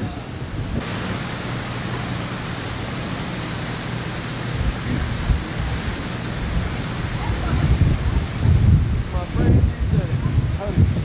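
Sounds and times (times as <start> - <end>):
wind gusts buffeting microphone: 0.0 - 1.3, 3.5 - 11.0
storm wind hissing: 0.0 - 11.0.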